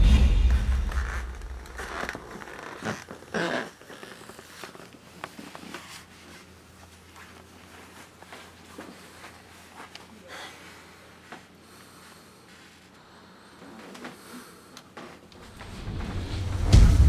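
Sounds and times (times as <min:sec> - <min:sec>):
low rumble: 0:00.0 - 0:02.2, 0:15.5 - 0:17.0
clothing rustling: 0:00.6 - 0:12.9.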